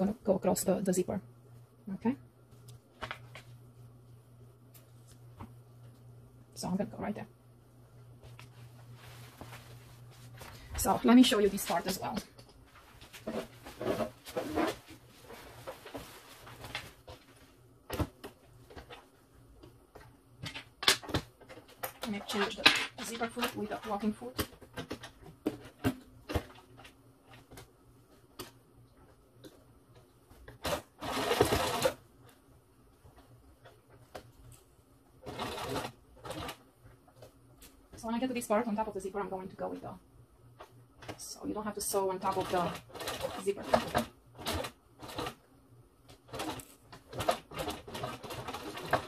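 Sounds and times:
sewing machine stitching: 30.5s - 32.0s, 35.2s - 36.6s, 41.9s - 45.4s, 46.2s - 49.0s.

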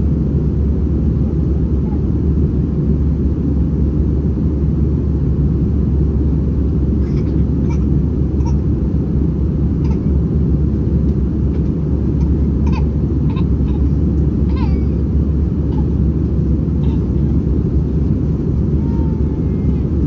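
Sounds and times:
airplane cabin drone: 0.0s - 20.0s
faint child cries: 9.8s - 10.1s, 12.2s - 15.0s, 15.7s - 16.0s, 16.8s - 17.4s, 18.7s - 20.0s.

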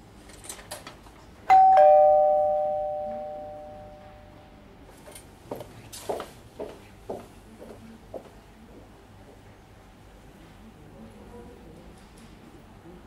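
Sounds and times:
two-note ding-dong chime: 1.5s - 4.4s.

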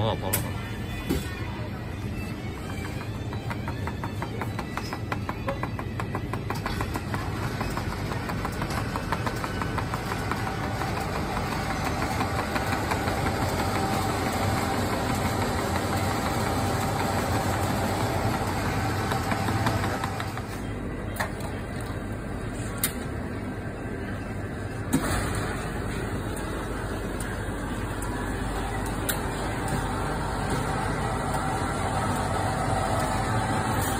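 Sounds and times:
drink machine humming: 0.0s - 33.9s
machine whine: 24.9s - 33.9s.

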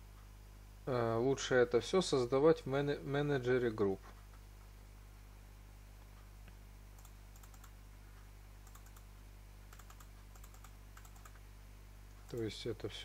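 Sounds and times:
low electrical hum: 0.0s - 13.0s
faint computer clicks: 6.0s - 11.4s, 12.1s - 12.5s.

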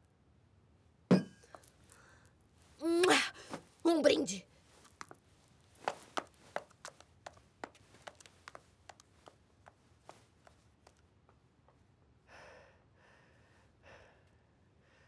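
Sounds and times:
soft breath: 1.7s - 2.8s, 12.2s - 15.0s.

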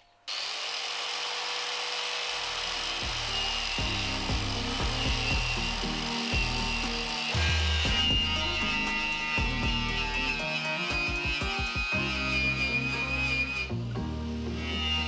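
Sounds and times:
angle grinder on sheet metal: 0.3s - 15.0s
background music with beat: 3.1s - 13.8s.

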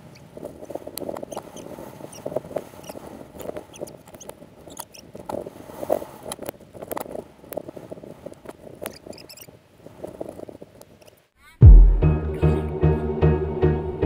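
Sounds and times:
rapid squeaky chirps: 1.2s - 3.0s, 3.6s - 5.1s, 8.8s - 9.6s.

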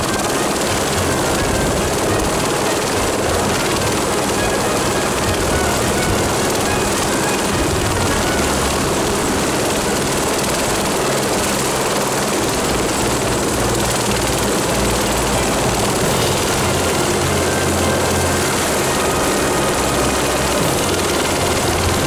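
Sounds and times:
helicopter rotor and engine drone: 0.0s - 22.0s.

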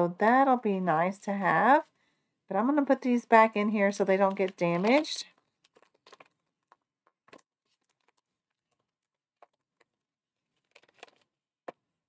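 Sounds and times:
cellophane and paper crinkling: 4.2s - 11.4s.

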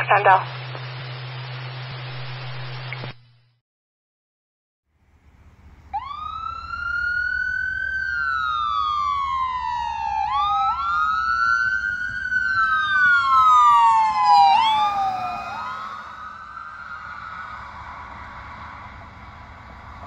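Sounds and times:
engine and road noise rumble: 4.9s - 20.0s
ambulance siren wailing: 5.9s - 20.0s.

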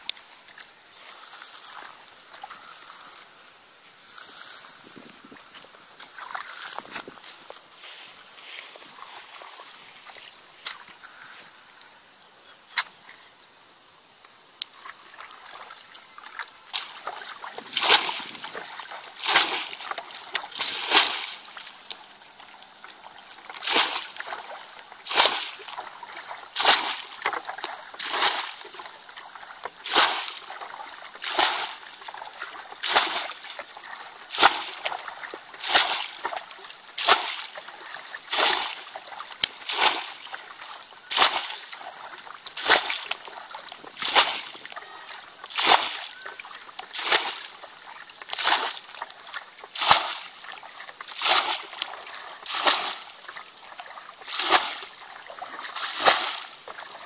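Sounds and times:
water splashing from bucket: 14.8s - 57.0s.

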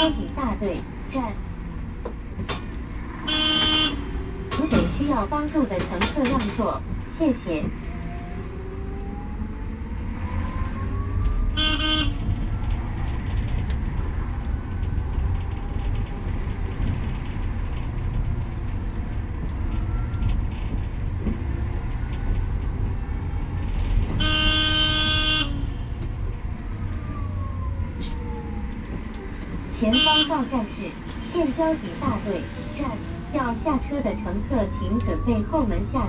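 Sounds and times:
road rumble: 0.0s - 36.0s
vehicle horn toots: 3.3s - 4.0s, 11.6s - 12.2s, 24.2s - 25.8s, 29.9s - 30.3s.

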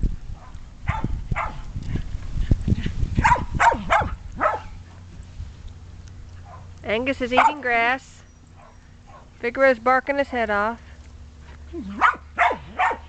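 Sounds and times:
dog barking: 0.4s - 1.6s, 3.2s - 4.7s, 7.3s - 7.6s, 8.6s - 9.3s, 11.9s - 13.0s.

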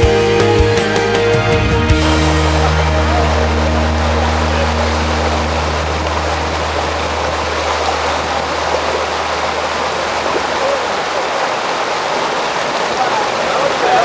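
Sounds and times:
floodwater rushing: 0.8s - 14.0s.

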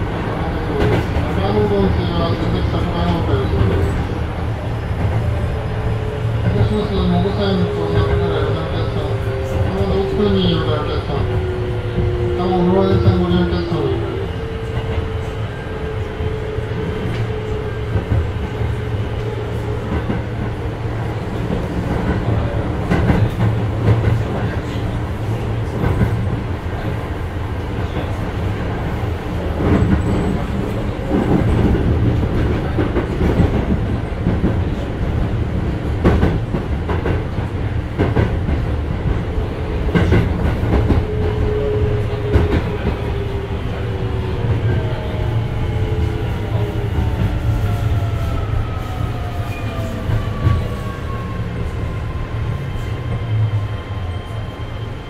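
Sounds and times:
train interior rumble: 0.0s - 55.0s.

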